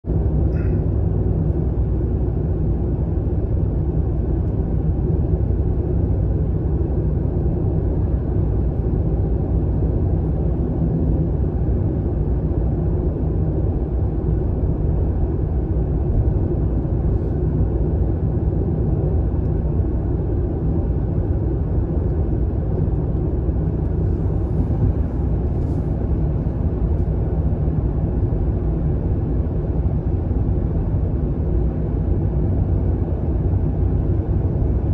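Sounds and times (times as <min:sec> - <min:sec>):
car interior road rumble: 0:21.8 - 0:34.9.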